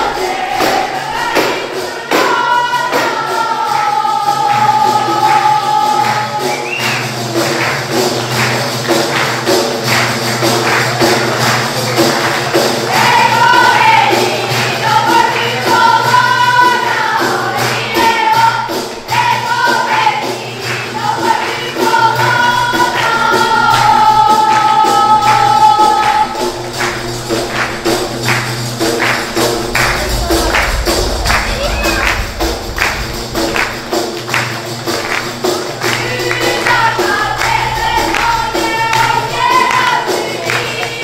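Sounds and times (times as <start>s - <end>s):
women singing folk melody: 0.0s - 7.0s, 12.8s - 26.9s, 35.8s - 41.0s
frame drums beaten: 0.0s - 41.0s.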